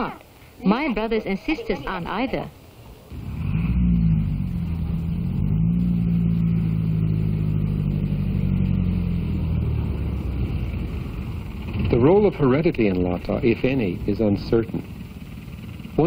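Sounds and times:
bus engine running: 1.7 - 16.0.

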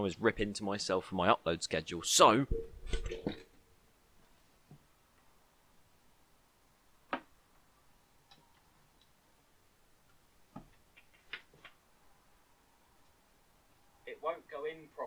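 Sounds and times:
sharp knocks and taps: 10.5 - 11.8.

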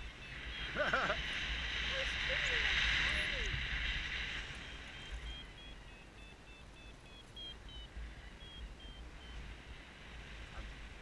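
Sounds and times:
variometer high beeps: 0.0 - 1.0, 4.6 - 9.4
low wind rumble: 0.0 - 11.0.

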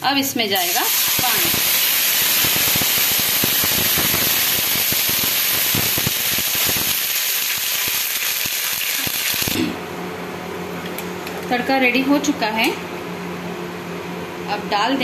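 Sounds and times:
oil sizzling and popping: 0.6 - 9.7.

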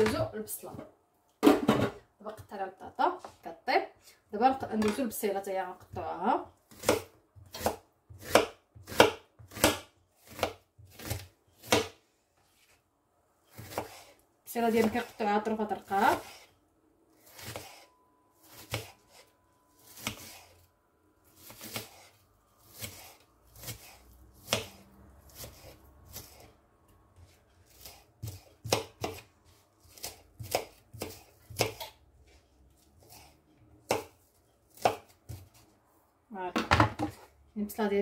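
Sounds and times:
knife chopping on plastic board: 6.7 - 12.0, 13.5 - 14.1, 15.9 - 16.5, 17.2 - 17.8, 18.5 - 20.5, 21.4 - 26.5, 27.2 - 32.0, 32.8 - 35.6.

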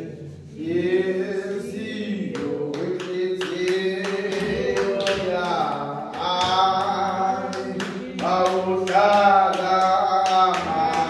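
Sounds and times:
voices singing a hymn: 0.0 - 11.0
hand claps: 2.2 - 11.0.

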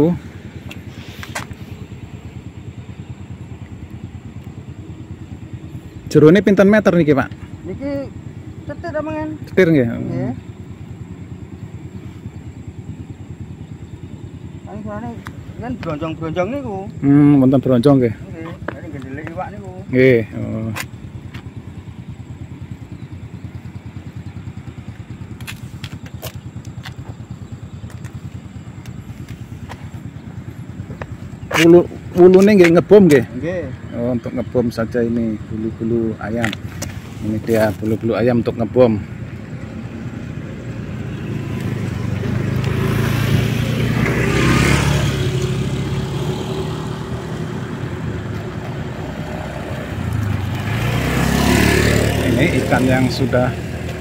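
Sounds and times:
motorcycle engine idling: 0.0 - 54.0
vehicle approaching: 0.0 - 54.0
vehicle passing by: 29.0 - 54.0.

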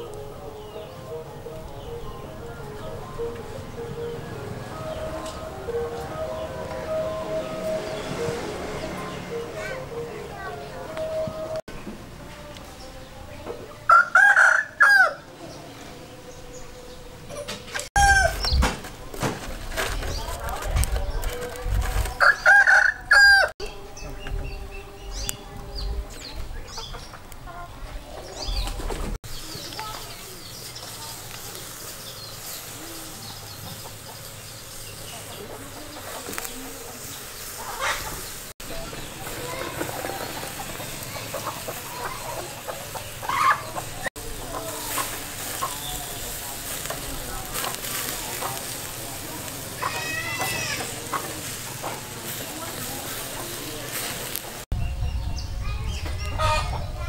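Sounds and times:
rooster crowing: 13.9 - 15.3, 18.0 - 18.5, 22.2 - 23.5
crackles and clicks: 17.7 - 22.3, 28.6 - 32.9, 43.8 - 54.8
sausages sizzling on a grill: 17.8 - 23.5, 29.2 - 54.8.

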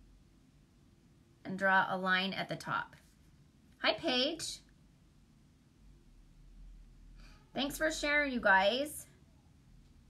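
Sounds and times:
faint low rumble: 0.0 - 10.0.

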